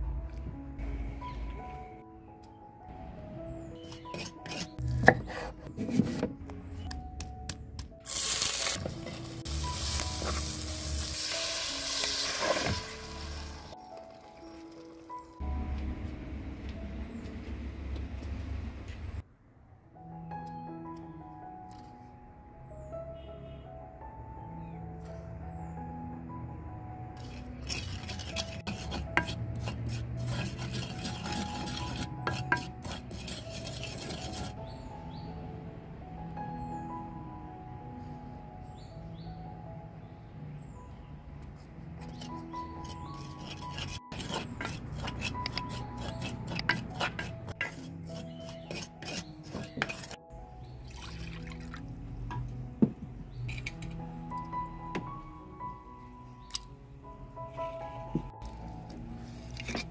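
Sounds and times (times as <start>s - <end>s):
cleaver chopping on wooden board: 4.9s - 6.3s
onions sizzling in hot oil: 8.1s - 13.7s
wooden spoon stirring: 27.2s - 34.6s, 42.0s - 50.2s.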